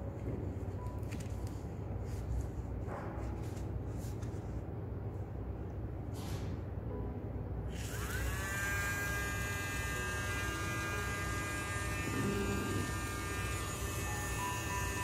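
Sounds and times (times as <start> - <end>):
rotary tool whining: 7.8 - 15.0.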